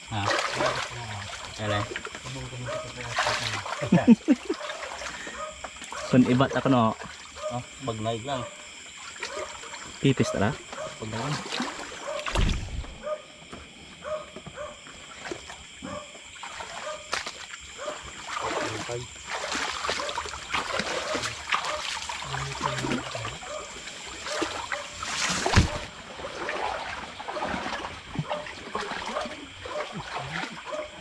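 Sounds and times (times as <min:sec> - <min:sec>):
water splashing and trickling: 0:00.0 - 0:12.9, 0:14.8 - 0:31.0
sharp splash or knock: 0:11.3 - 0:13.0, 0:16.4 - 0:17.4, 0:24.3 - 0:30.5.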